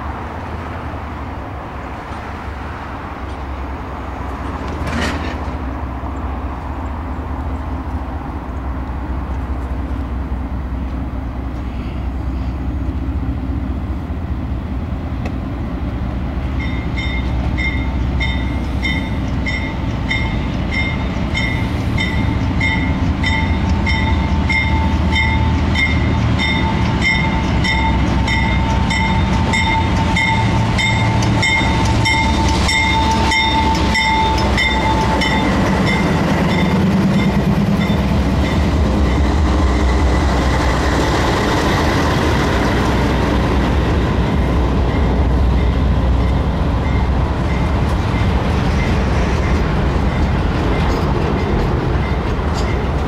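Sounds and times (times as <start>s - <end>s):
locomotive engine rumble: 0.0s - 53.0s
train wheels clattering: 4.3s - 5.6s, 16.6s - 53.0s
locomotive bell ringing: 16.6s - 40.2s, 44.3s - 53.0s.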